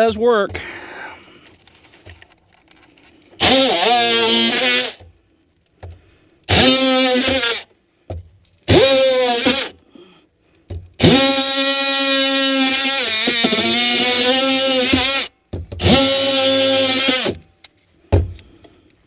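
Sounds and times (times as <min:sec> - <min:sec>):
power tool cutting sheetrock: 0:03.4 - 0:05.0, 0:06.5 - 0:07.7, 0:08.7 - 0:09.8, 0:11.0 - 0:17.4.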